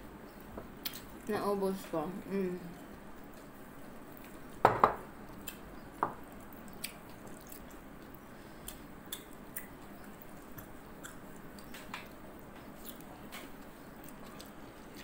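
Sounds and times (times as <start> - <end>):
person chewing: 0.8 - 1.3, 5.2 - 15.0
ceramic bowl knocking on table: 4.6 - 5.0.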